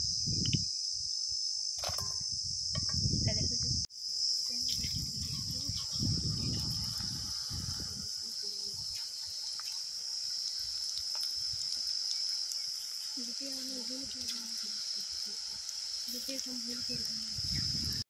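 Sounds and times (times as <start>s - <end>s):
crickets chirring: 0.0s - 18.0s
food deep-frying in oil: 4.7s - 18.0s.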